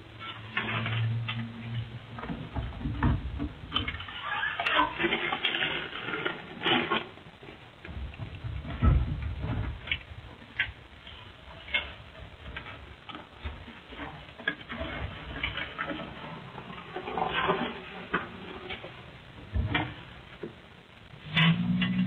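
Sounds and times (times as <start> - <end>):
rustling: 0.0 - 22.0.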